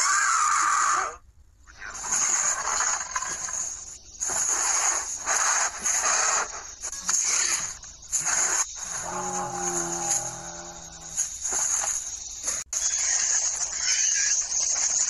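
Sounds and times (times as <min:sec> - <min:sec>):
creature hisses: 0:04.6 - 0:11.2.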